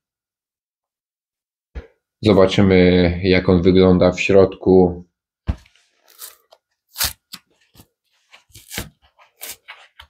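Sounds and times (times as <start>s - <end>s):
cardboard tearing: 6.1s - 10.0s.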